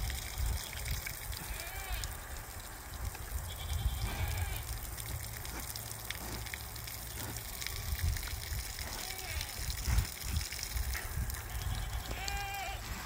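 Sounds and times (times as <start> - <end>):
pigs crunching grain: 4.0 - 13.0.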